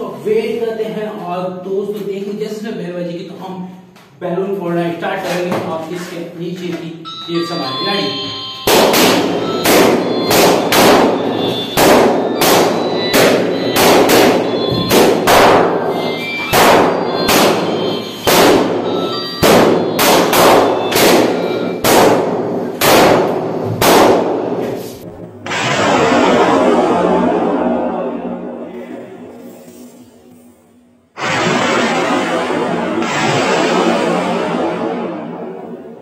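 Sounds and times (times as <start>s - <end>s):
balloons popping: 8.7s - 24.8s.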